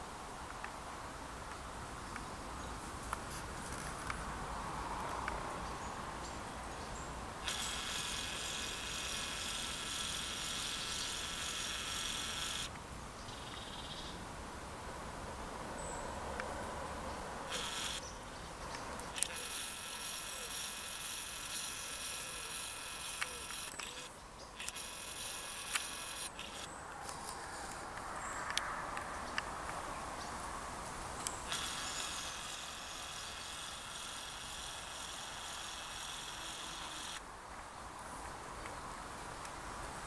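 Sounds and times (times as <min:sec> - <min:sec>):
faint outdoor background noise: 0:00.0 - 0:40.0
zoom motor whine: 0:07.4 - 0:12.7, 0:17.5 - 0:18.0, 0:19.1 - 0:26.7, 0:31.5 - 0:37.2.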